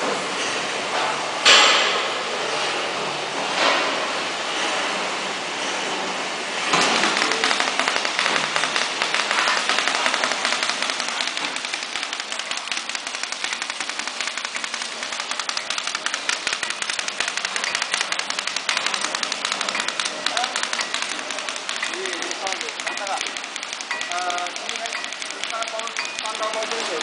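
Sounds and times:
packing machine clattering: 6.6 - 27.0.

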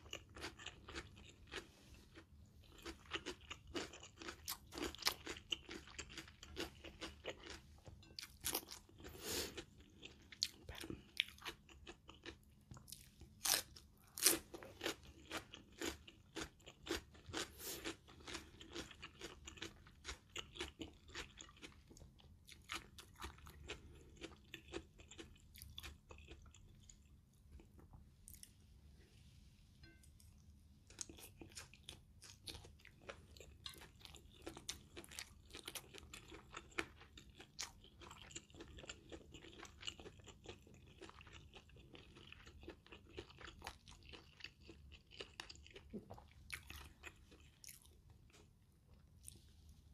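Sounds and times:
close-up chewing with mouth smacks: 2.7 - 7.6, 14.2 - 28.5, 30.9 - 48.5.

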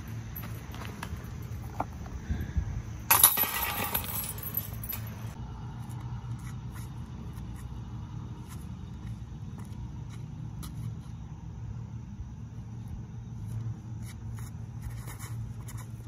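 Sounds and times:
metal chains jangling: 3.1 - 5.4.

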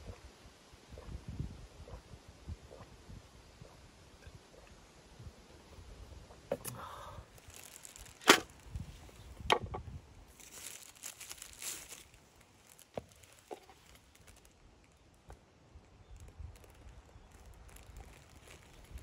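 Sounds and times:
crinkling rustle: 7.3 - 9.4, 10.3 - 19.0.

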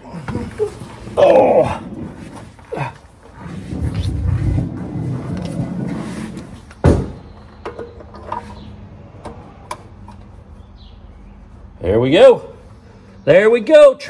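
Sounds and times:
metal rumbling and scraping: 0.1 - 10.6.

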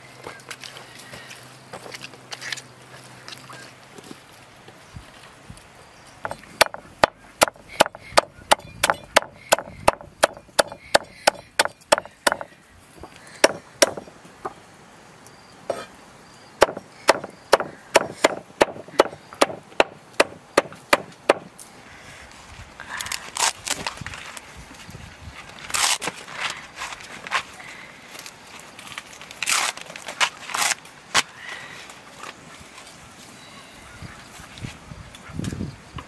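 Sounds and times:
cleaver chopping on wooden board: 6.3 - 12.5, 13.4 - 14.1, 16.6 - 21.5.

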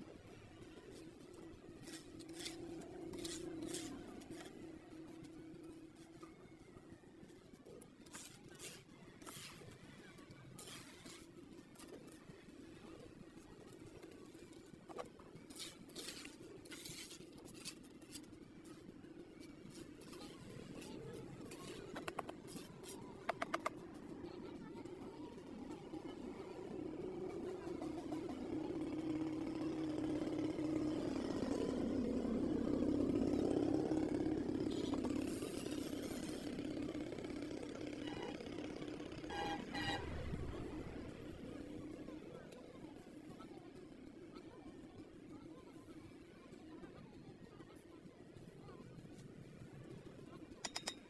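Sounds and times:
trowel scraping wet mortar: 1.8 - 4.8, 8.0 - 12.2, 15.5 - 18.3.

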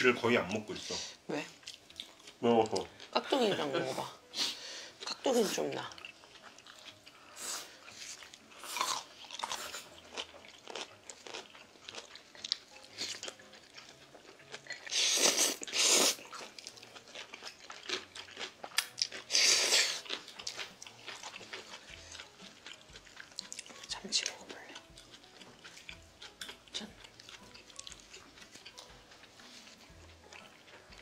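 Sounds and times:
crunchy chewing: 1.6 - 3.1, 5.8 - 31.0.

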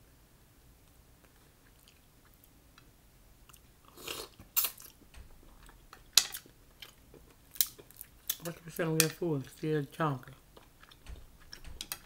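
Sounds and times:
person chewing: 1.2 - 2.6, 3.4 - 8.6, 10.5 - 12.0
sharp clicks: 10.6 - 12.0.

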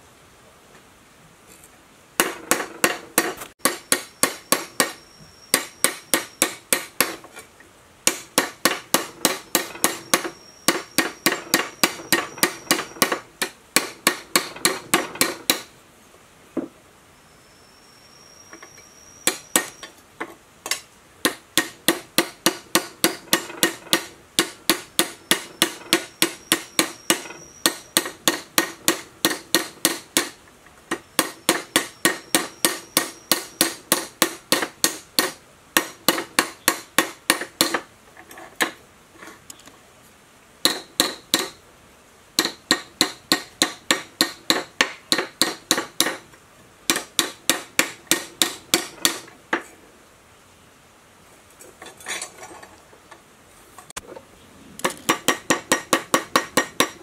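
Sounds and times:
hammer striking steel blade: 2.2 - 7.2, 8.1 - 15.7.

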